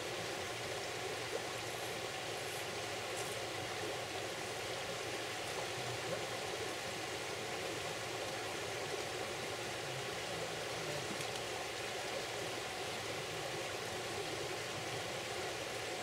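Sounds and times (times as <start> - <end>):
river running over stones: 0.0 - 16.0.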